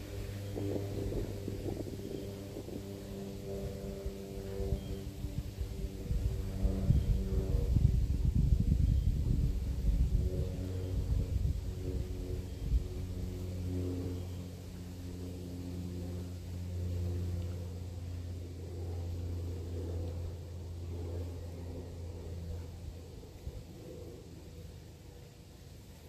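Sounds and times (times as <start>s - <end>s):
low engine hum: 0.0s - 26.0s.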